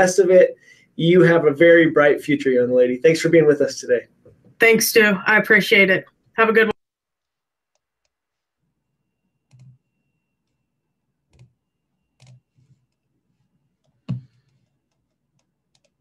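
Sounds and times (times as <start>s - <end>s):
computer mouse and key clicks: 9.5s - 9.8s, 11.3s - 11.6s, 12.2s - 13.1s, 13.8s - 16.0s.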